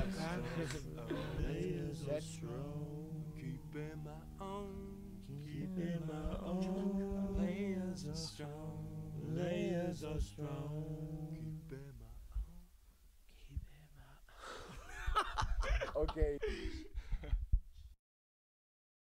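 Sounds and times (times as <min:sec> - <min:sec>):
man singing: 0:00.0 - 0:12.6
steady low bass line: 0:00.0 - 0:12.8.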